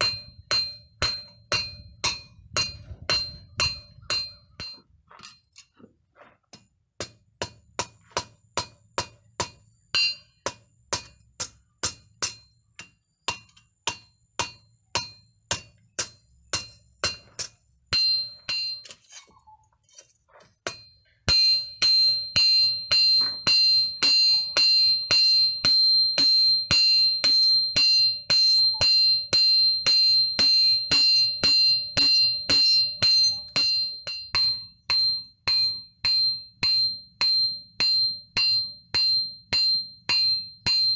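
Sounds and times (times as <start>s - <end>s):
hammer striking tool on hot steel: 0.0s - 5.7s, 6.5s - 19.4s, 20.4s - 40.9s
metal ringing: 0.0s - 5.7s, 7.0s - 19.7s, 20.6s - 40.9s.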